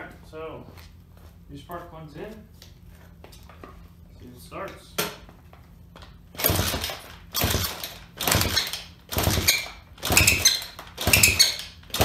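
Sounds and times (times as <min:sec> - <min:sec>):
motorbike kick-start turning over: 0:06.4 - 0:12.0
squeak from kick: 0:09.4 - 0:11.6.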